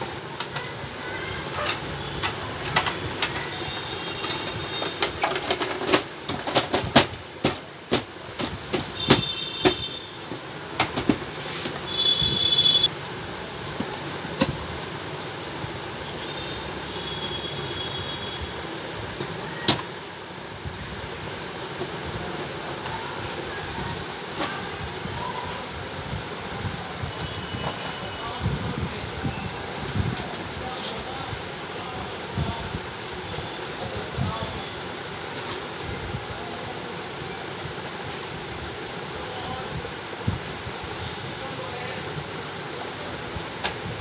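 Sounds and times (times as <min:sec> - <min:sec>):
plastic parts clicking and knocking: 0:01.5 - 0:03.5, 0:04.2 - 0:11.3.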